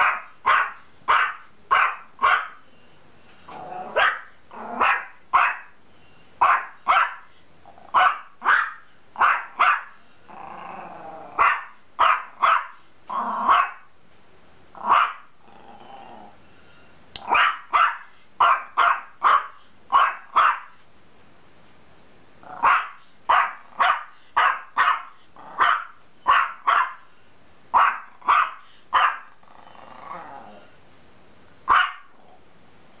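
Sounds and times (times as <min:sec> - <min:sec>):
small dog barking high yaps: 0:00.0 - 0:02.6, 0:04.0 - 0:05.7, 0:06.4 - 0:07.3, 0:08.0 - 0:09.9, 0:11.4 - 0:12.8, 0:13.5 - 0:13.8, 0:14.8 - 0:15.2, 0:17.2 - 0:20.7, 0:22.6 - 0:27.0, 0:27.8 - 0:29.3, 0:31.7 - 0:32.1
dog growling: 0:03.5 - 0:05.0, 0:10.3 - 0:11.6, 0:13.1 - 0:13.6, 0:14.8 - 0:16.4, 0:22.4 - 0:22.9, 0:25.4 - 0:25.8, 0:29.2 - 0:30.8, 0:31.9 - 0:32.4.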